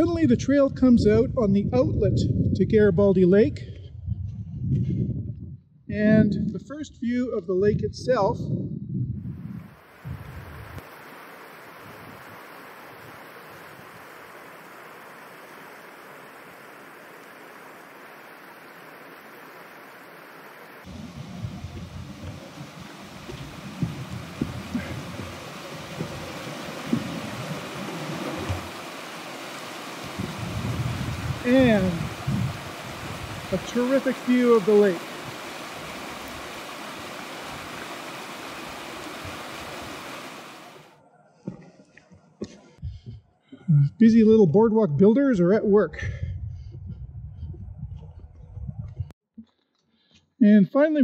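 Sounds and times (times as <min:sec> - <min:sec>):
running water rushing: 0:09.6 - 0:41.0.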